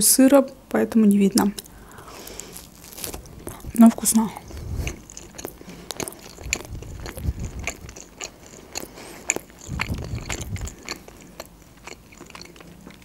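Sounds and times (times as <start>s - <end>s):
person chewing food: 1.6s - 13.0s
wet mouth clicks: 3.5s - 12.6s.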